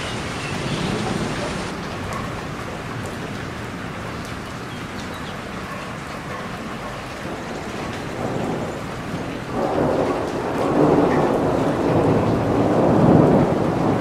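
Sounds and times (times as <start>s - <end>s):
thunder rumbling: 0.0s - 3.9s, 7.2s - 14.0s
steady rain falling: 0.0s - 14.0s.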